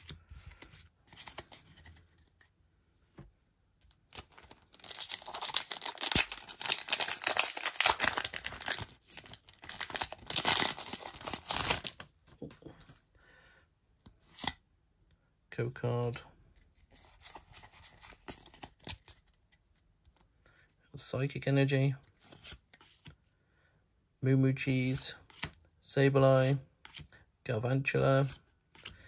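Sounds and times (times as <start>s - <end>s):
foil wrapper tearing and crinkling: 4.3s - 12.0s.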